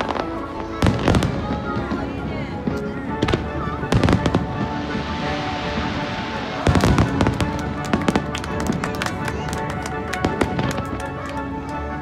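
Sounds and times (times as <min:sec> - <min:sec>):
fireworks bursting with bangs: 0:00.0 - 0:11.6.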